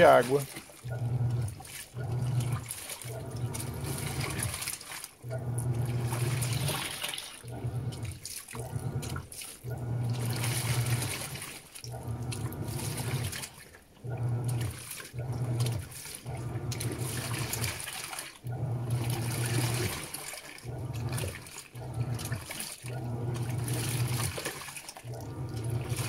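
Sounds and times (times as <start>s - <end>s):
washing machine motor humming: 0.0s - 26.0s
water sloshing and churning: 0.0s - 26.0s.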